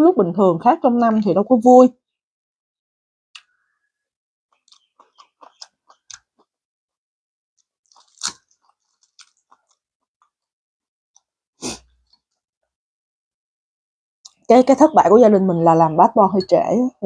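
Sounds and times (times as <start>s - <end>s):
person chewing crunchy food: 4.5s - 6.5s, 7.6s - 10.4s.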